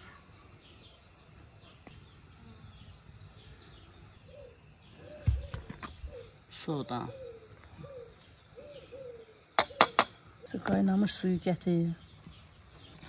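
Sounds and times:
faint birdsong: 0.0s - 13.0s.

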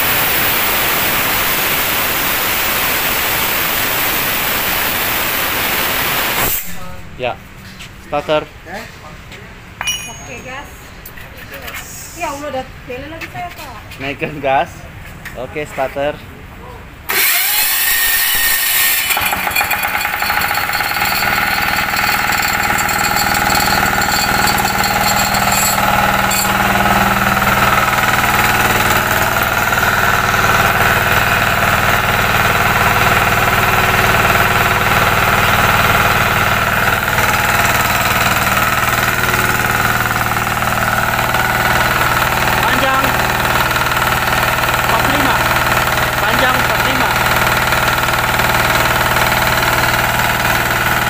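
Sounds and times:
air compressor pump: 0.0s - 6.9s, 17.1s - 51.0s
electric starter cranking engine: 17.1s - 51.0s
diesel engine running: 19.1s - 51.0s.

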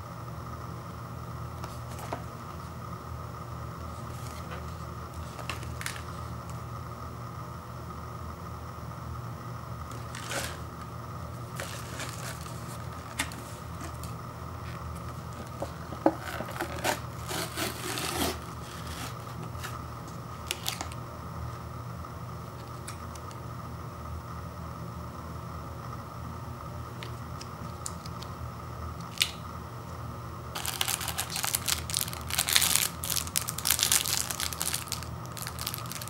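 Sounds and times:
steady low hum: 0.0s - 36.0s
foil and plastic crinkling: 4.0s - 6.3s, 9.9s - 10.7s, 11.4s - 19.8s, 20.4s - 21.0s, 30.6s - 36.0s.

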